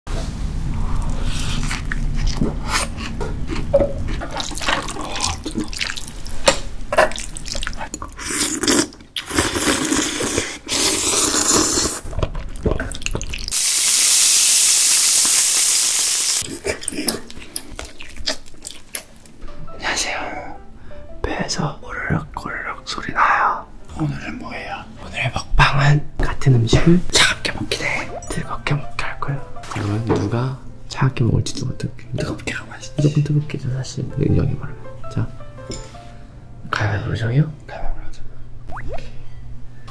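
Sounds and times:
wet chewing and slurping: 0.9s - 13.6s, 16.4s - 19.3s
steady hiss: 13.6s - 16.4s.

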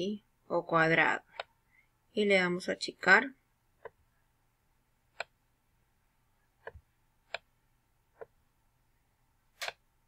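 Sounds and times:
computer mouse clicking: 5.1s - 5.4s, 6.6s - 7.5s, 9.6s - 9.8s.

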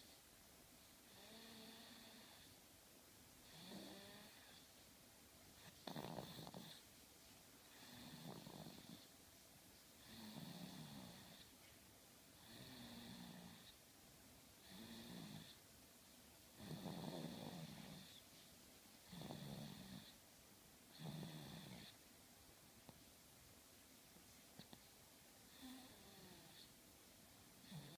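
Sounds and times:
baby snoring: 1.1s - 2.6s, 3.4s - 4.6s, 5.6s - 6.9s, 7.7s - 9.1s, 10.0s - 11.5s, 12.4s - 13.8s, 14.6s - 15.6s, 16.6s - 18.2s, 19.0s - 20.2s, 20.9s - 22.0s, 25.5s - 26.7s, 27.6s - 27.9s.

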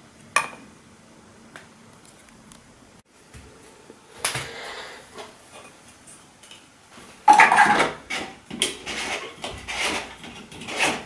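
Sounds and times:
plastic clattering and scraping: 7.3s - 11.0s.

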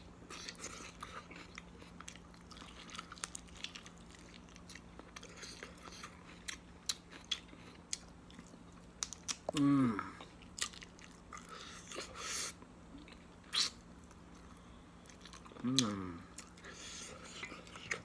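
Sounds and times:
faint steady hum: 0.0s - 18.0s
close-up chewing: 0.3s - 9.6s, 13.0s - 18.0s.

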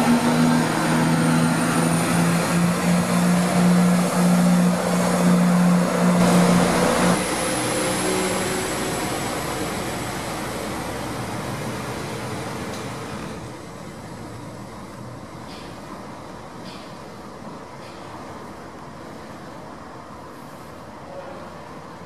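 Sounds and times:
diesel engines droning: 0.0s - 22.0s
train rolling noise: 0.0s - 22.0s.

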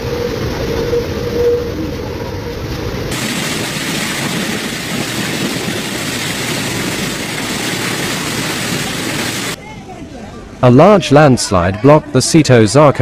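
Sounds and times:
floodwater rushing: 0.0s - 9.6s.

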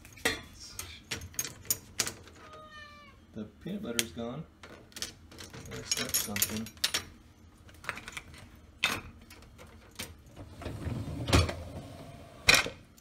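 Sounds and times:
rack rolling rumble: 10.3s - 12.5s.

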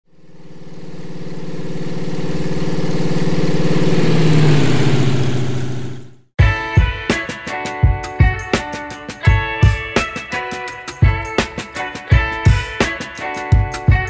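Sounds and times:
engine passing by: 0.1s - 6.3s.

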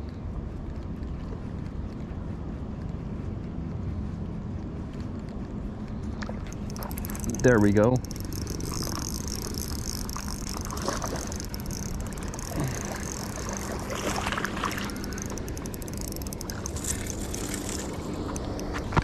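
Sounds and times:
fish splashing: 6.2s - 19.0s
fishing reel being cranked: 6.4s - 19.0s.

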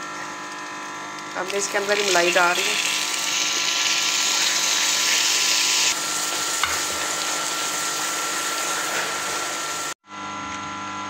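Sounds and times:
cream sizzling in hot pan: 1.4s - 10.0s.

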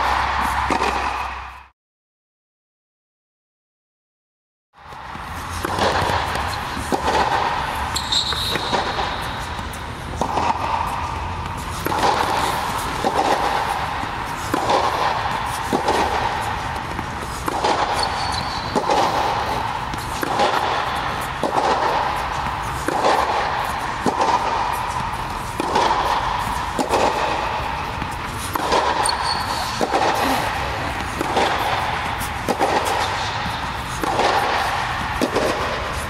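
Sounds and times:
racket hitting tennis ball: 0.0s - 1.7s, 4.9s - 36.0s
high squeaks: 7.9s - 8.7s, 17.9s - 18.8s, 29.0s - 29.8s.

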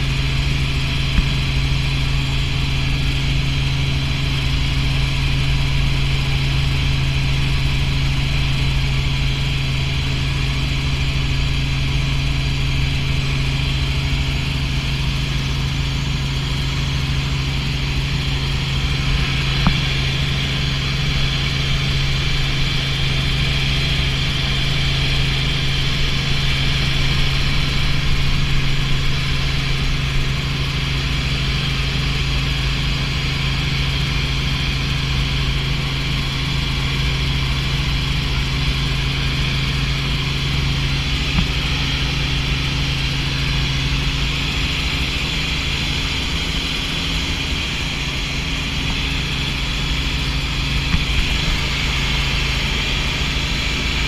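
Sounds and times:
helicopter engine and rotor drone: 0.0s - 54.0s.

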